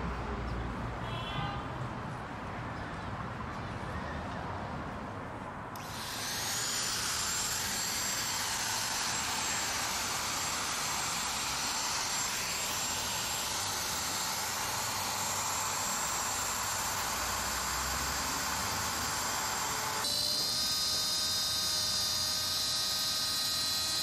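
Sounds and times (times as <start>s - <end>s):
router motor whine: 5.8s - 24.0s.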